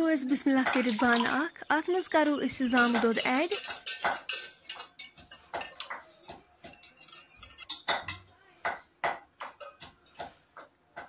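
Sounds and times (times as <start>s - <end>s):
whisk clinking on metal pot: 2.6s - 8.2s.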